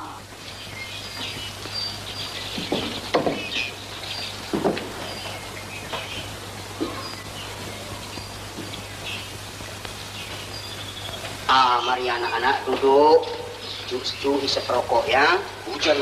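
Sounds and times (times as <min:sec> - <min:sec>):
footsteps on wooden veranda: 0:00.0 - 0:11.8
heavy rain hissing: 0:00.0 - 0:16.0
old film soundtrack hum: 0:00.0 - 0:16.0.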